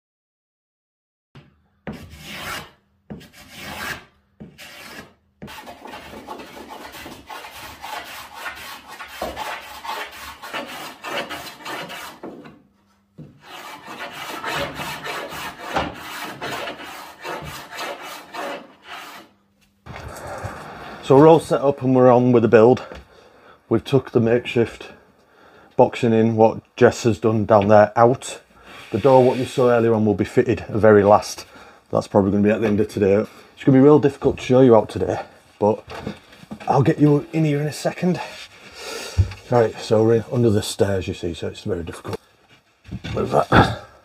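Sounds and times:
hand tool rasping wood: 1.9 - 12.5, 13.4 - 19.3.

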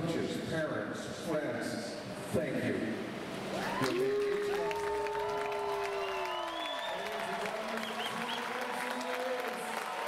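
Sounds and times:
applause: 3.6 - 10.0.

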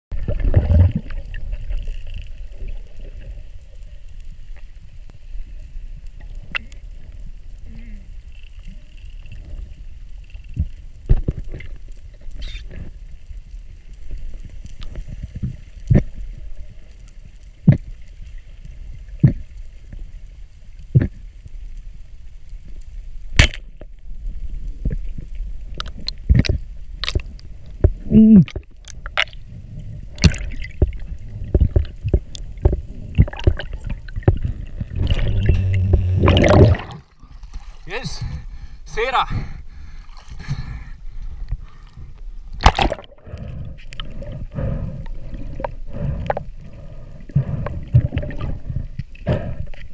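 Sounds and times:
low underwater rumble: 0.1 - 49.9
rush of water: 30.0 - 38.3.

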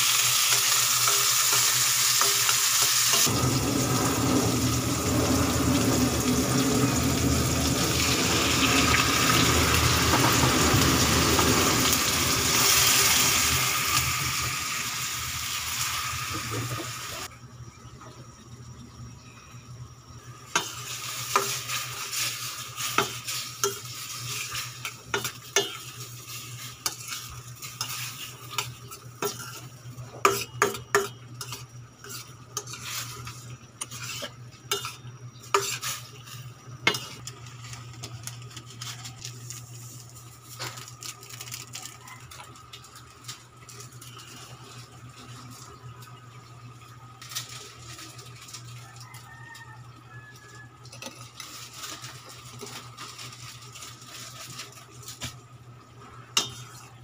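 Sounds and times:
food sizzling: 0.0 - 17.3, 20.2 - 57.0
steady low hum: 3.3 - 15.7.

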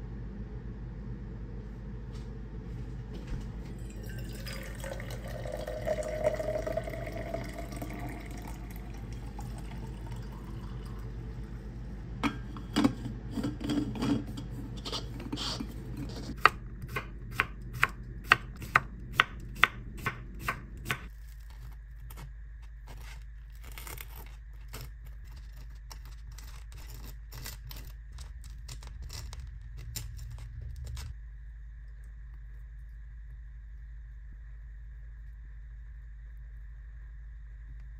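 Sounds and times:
tea pouring into metal tumbler: 3.7 - 11.7.

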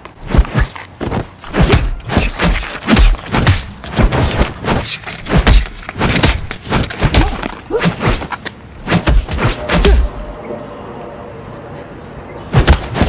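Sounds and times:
punch and kick thumps: 0.2 - 8.3, 8.9 - 10.1, 12.6 - 13.0
whooshes: 7.8 - 11.8.

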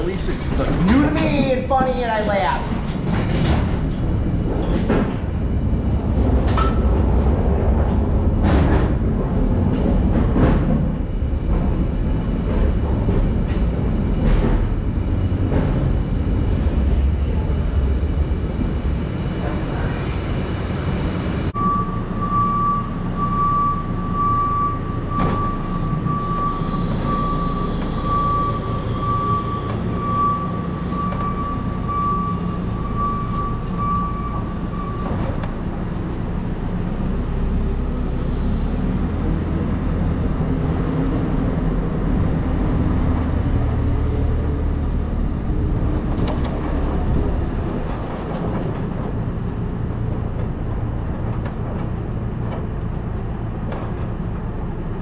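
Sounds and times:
reversing alarm beeping: 21.6 - 35.4.

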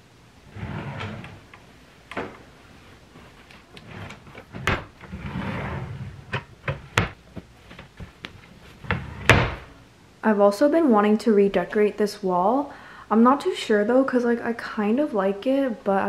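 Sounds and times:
drawers knocking shut: 0.5 - 1.4, 3.8 - 7.5, 8.8 - 9.7
wooden drawers sliding: 0.5 - 2.5, 3.1 - 9.7.

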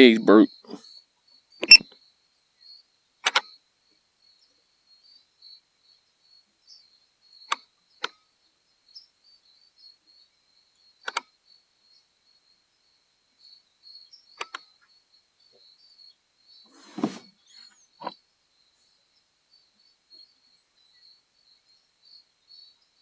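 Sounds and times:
sharp clicks: 1.6 - 1.8, 3.2 - 3.5, 11.0 - 11.3, 14.4 - 14.6.

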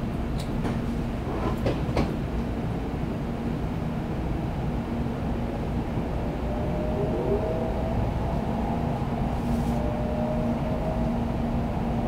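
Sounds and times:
train cabin low rumble: 0.0 - 12.0
steady hum: 3.8 - 12.0.

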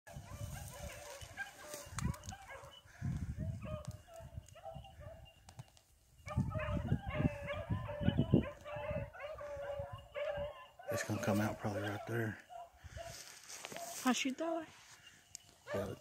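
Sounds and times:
footsteps through dry grass: 0.1 - 4.5, 10.9 - 16.0
dogs yipping and baying: 0.1 - 5.4, 6.2 - 14.0, 15.6 - 16.0.

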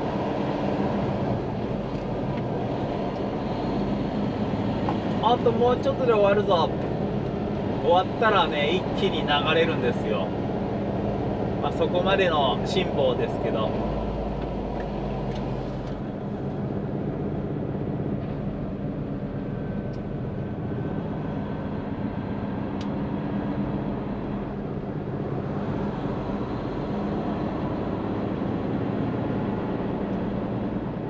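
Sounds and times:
road and traffic noise: 0.0 - 31.0
diesel truck engine running: 10.2 - 31.0.

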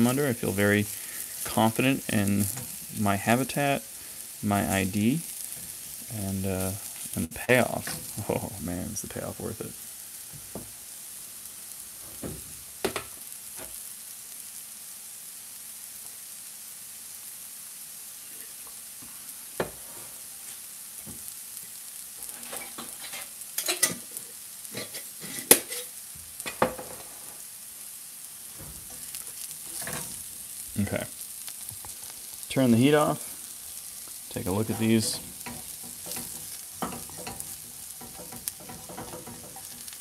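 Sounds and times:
mushrooms sizzling in a pan: 0.0 - 40.0
fat popping and crackling: 28.5 - 40.0.

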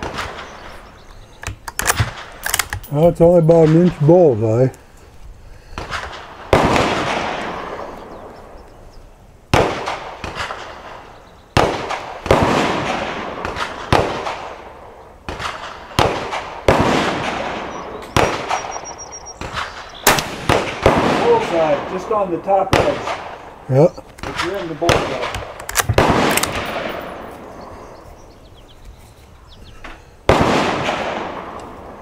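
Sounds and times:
gunshots with echo: 0.0 - 0.8, 5.8 - 8.3, 9.5 - 23.6, 24.2 - 27.8, 30.3 - 32.0.

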